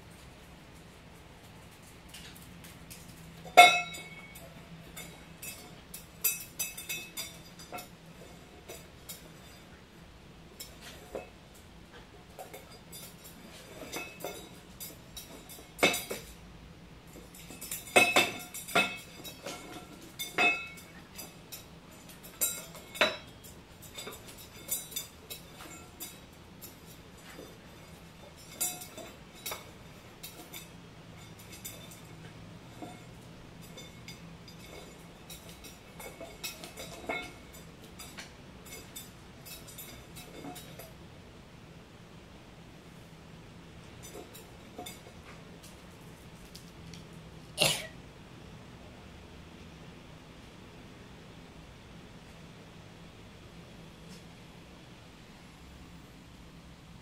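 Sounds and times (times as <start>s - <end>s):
metal dog bowl clanking on floor: 2.1s - 9.7s, 10.6s - 16.4s, 17.1s - 41.0s, 43.8s - 45.4s.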